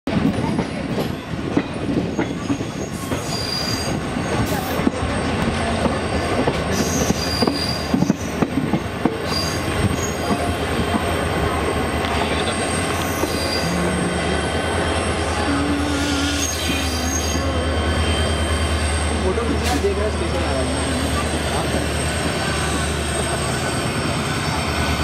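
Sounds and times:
train wheels rumbling on rails: 0.1s - 25.0s
high-pitched metal squeals: 12.5s - 19.3s.

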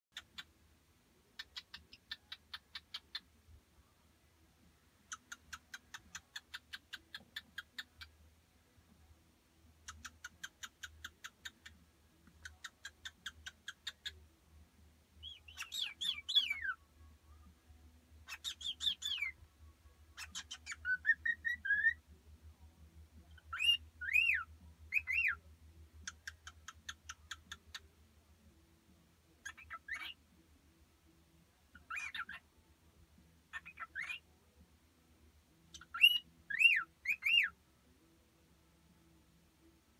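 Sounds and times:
cockatiel chirping: 1.4s - 3.2s, 5.1s - 8.1s, 9.9s - 11.7s, 12.4s - 14.2s, 15.2s - 16.8s, 18.2s - 19.4s, 20.2s - 22.0s, 23.3s - 25.4s, 26.0s - 27.8s, 29.4s - 30.2s, 31.7s - 32.4s, 33.5s - 34.2s, 35.7s - 37.5s
cockatiel whistling: 15.3s - 16.8s, 20.2s - 22.0s, 23.5s - 25.4s, 29.5s - 30.2s, 31.8s - 32.4s, 33.5s - 34.2s, 35.8s - 37.5s.

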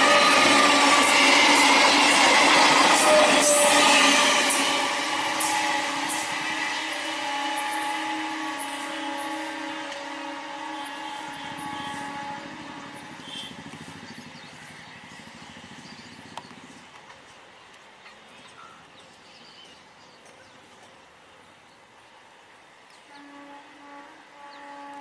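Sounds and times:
train horn steady tone: 0.0s - 14.2s, 23.0s - 25.0s
train rumbling: 0.0s - 21.6s.

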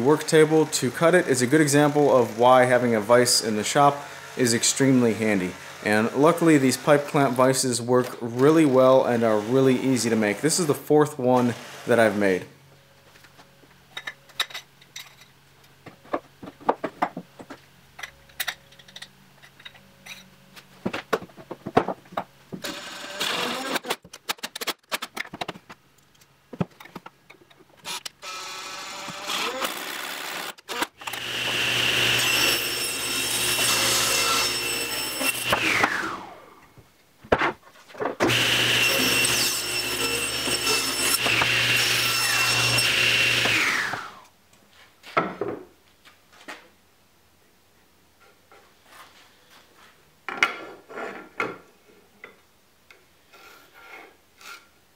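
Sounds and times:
table saw whining: 22.6s - 23.9s, 27.9s - 36.6s, 38.3s - 44.3s.

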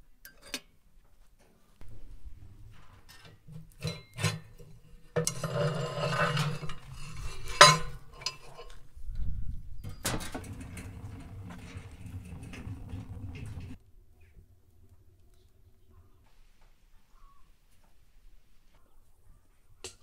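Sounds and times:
metal pot clinking: 3.2s - 8.8s, 10.0s - 13.8s
loud metal clank: 9.9s - 13.8s.

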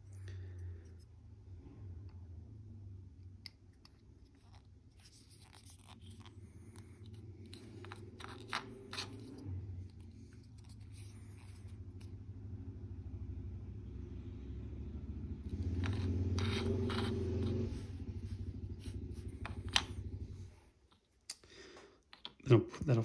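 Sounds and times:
steady low hum: 0.0s - 22.0s
plastic parts clicking and scraping: 3.5s - 12.1s, 15.6s - 17.7s.

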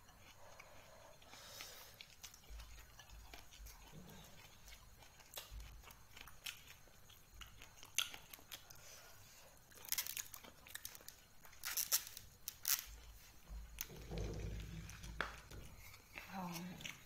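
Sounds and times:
crunchy biting and chewing: 0.1s - 17.0s
food tearing crackle: 9.6s - 13.2s.

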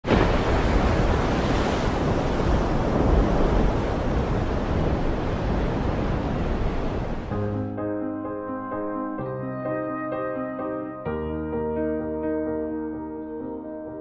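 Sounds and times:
wind: 0.0s - 7.3s
waves surging: 0.0s - 7.4s.

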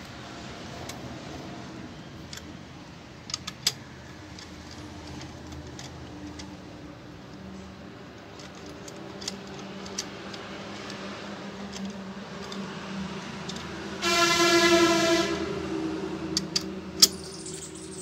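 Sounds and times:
wrench metallic clicks: 3.2s - 6.6s, 16.3s - 18.0s
horn blast: 14.0s - 16.1s.

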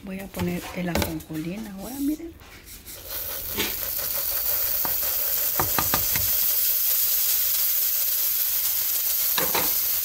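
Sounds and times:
seeds pattering into a blender jar: 3.0s - 10.0s.

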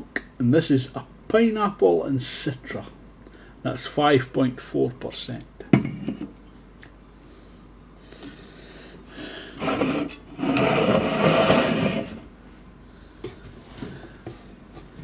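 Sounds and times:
cans scraping across countertop: 9.6s - 12.3s.

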